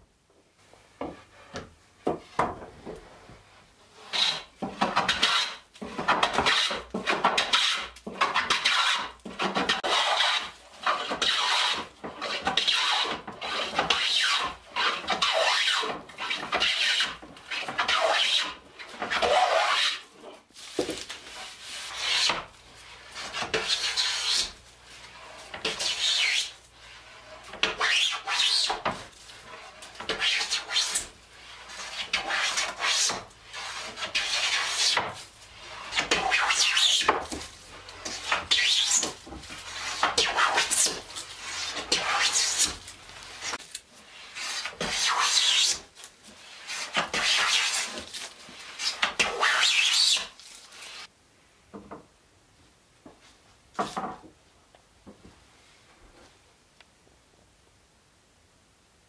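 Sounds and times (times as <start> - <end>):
hand plane shaving wood: 3.9 - 51.1.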